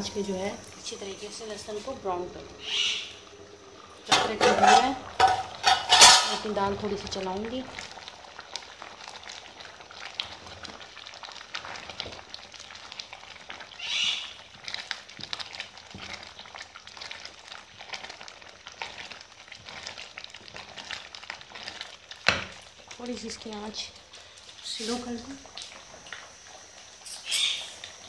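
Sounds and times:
wooden spoon scraping a pot: 0:04.1 - 0:06.6
thick liquid bubbling: 0:06.5 - 0:27.0
high-pitched squeak: 0:27.1 - 0:27.8.

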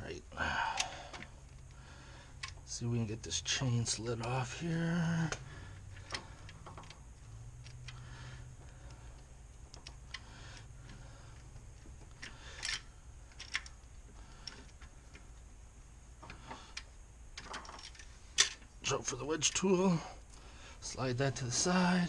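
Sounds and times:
metallic clicks and rattles: 0:05.8 - 0:15.3, 0:16.2 - 0:18.7.

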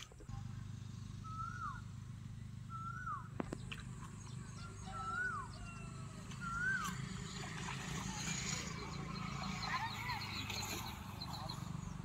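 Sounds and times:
low steady hum: 0:00.0 - 0:12.0
bird whistling call: 0:01.2 - 0:01.9, 0:02.6 - 0:03.3, 0:04.5 - 0:07.0.

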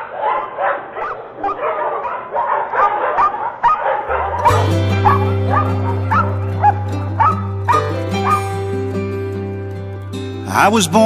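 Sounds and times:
dogs barking and yipping: 0:00.0 - 0:09.6
instrumental music with bass: 0:04.1 - 0:11.0.

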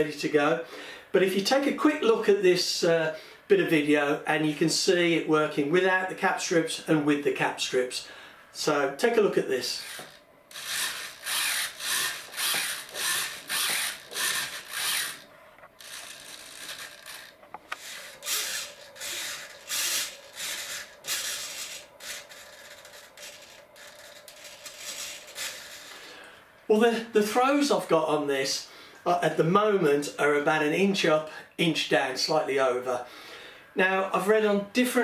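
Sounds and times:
faint steady hum: 0:00.0 - 0:35.0
small servo whirring: 0:09.8 - 0:26.0.

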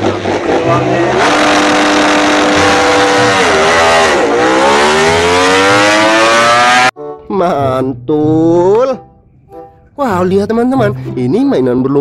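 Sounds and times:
motorcycle engine revving: 0:00.0 - 0:06.9.

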